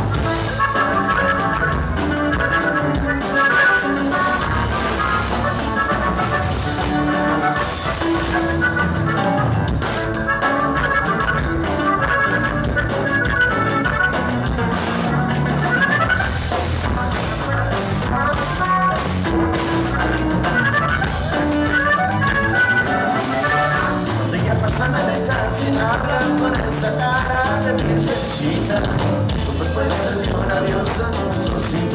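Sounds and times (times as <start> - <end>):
button accordion melody: 0.0 - 31.4
drum kit: 0.0 - 31.9
strummed guitar: 0.0 - 31.9.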